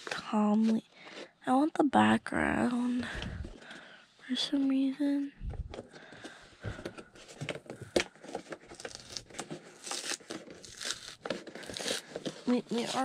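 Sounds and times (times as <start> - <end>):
plastic and cardboard crinkling: 5.5 - 13.0.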